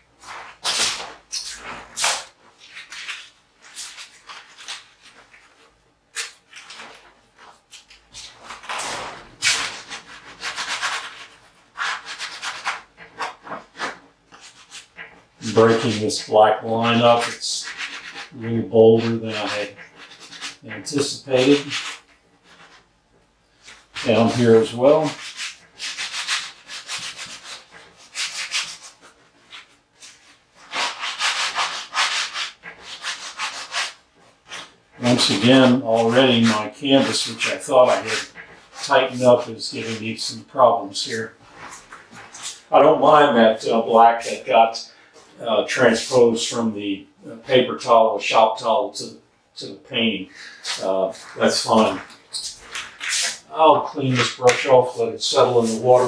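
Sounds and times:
hand rubbing paint on canvas: 6.2 - 22.9, 23.6 - 44.8, 50.0 - 56.0.

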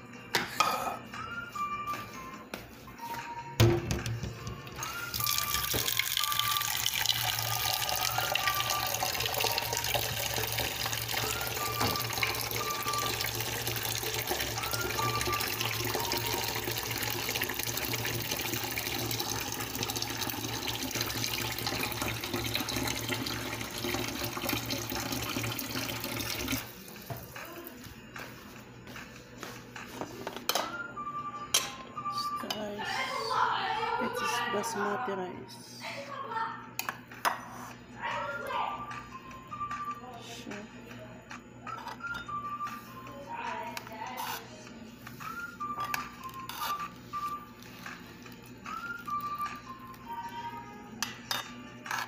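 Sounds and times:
tap water running into metal pot: 5.1 - 27.2.

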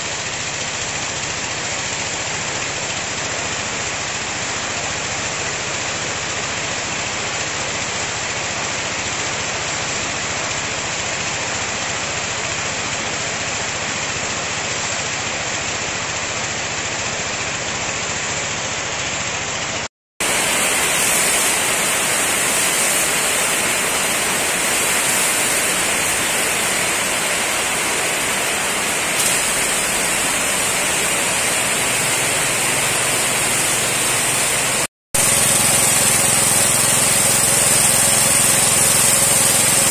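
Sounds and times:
sprayer pump engine hum: 0.0 - 39.9
pressure washer jet hissing: 20.2 - 39.9.

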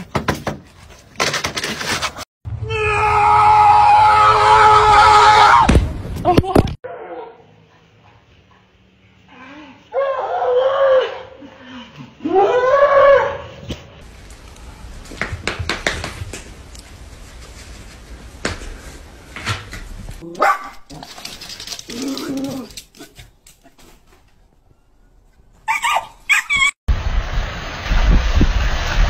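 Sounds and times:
dogs barking: 20.4 - 20.8.

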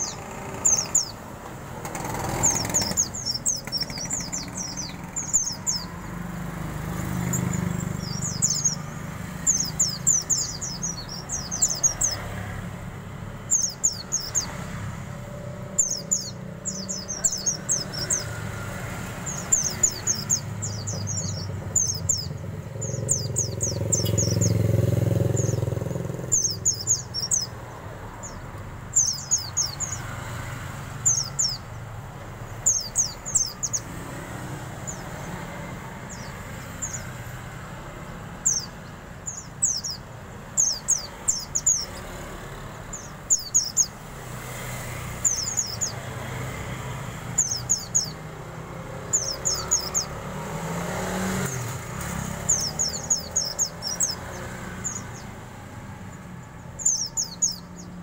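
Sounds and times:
bird chirping: 0.0 - 58.0
low traffic rumble: 0.0 - 58.0
vehicle passing by: 0.0 - 58.0.

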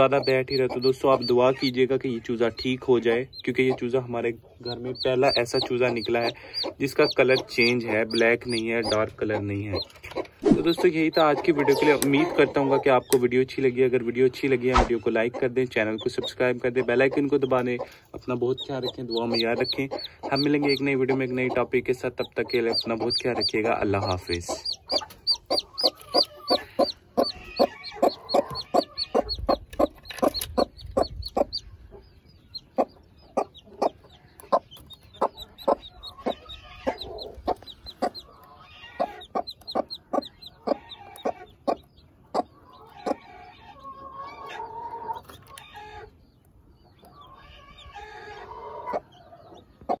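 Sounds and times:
chick peeping: 0.0 - 50.0
adult chicken calls: 9.7 - 13.2, 22.6 - 46.2, 47.1 - 50.0.

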